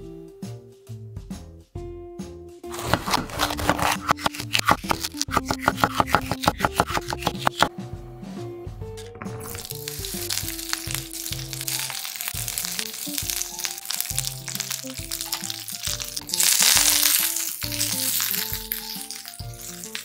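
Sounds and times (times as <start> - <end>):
soft background music: 0.0 - 20.0
peppers sizzling in frying pan: 2.7 - 7.7, 9.4 - 20.0.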